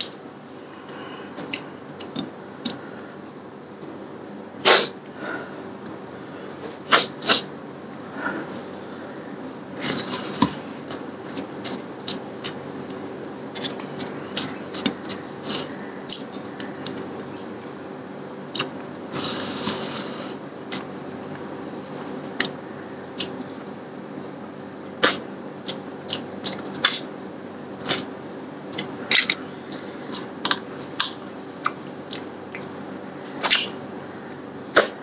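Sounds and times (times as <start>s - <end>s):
chewing and mouth noises: 28.8s - 32.7s.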